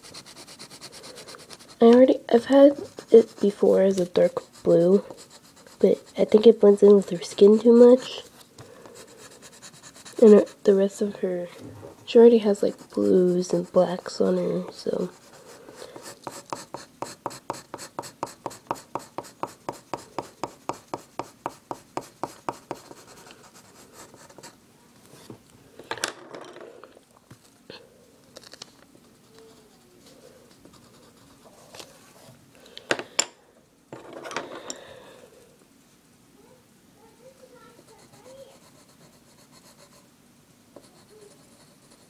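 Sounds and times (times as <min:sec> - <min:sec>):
pencil shading on paper: 0:00.0 - 0:08.3, 0:08.9 - 0:11.0, 0:12.1 - 0:24.6, 0:37.6 - 0:40.0, 0:40.8 - 0:42.0.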